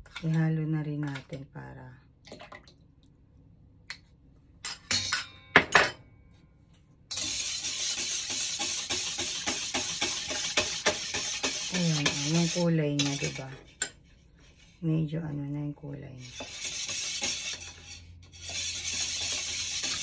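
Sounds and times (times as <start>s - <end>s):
whisk beating in metal bowl: 7.1s - 14.8s, 16.2s - 20.0s.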